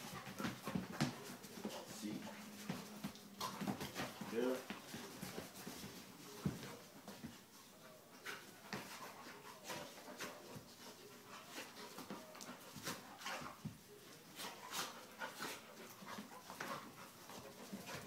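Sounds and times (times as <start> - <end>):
dogs scuffling: 0.0 - 18.0
dogs breathing hard: 14.4 - 18.0.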